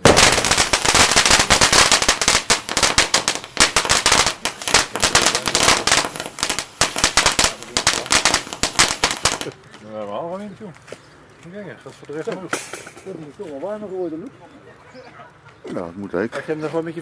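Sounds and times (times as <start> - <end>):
firecrackers banging: 0.0 - 9.6, 12.3 - 13.4.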